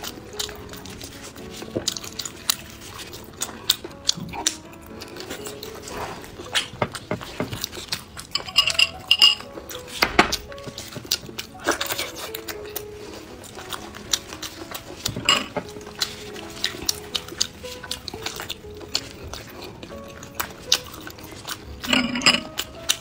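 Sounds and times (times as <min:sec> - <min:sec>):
background music: 0:00.0 - 0:23.0
wet chewing and smacking: 0:00.0 - 0:23.0.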